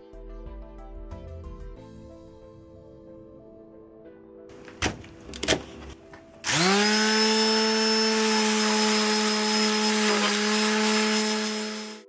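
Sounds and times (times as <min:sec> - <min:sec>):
electric sander buzzing: 0:06.4 - 0:12.0.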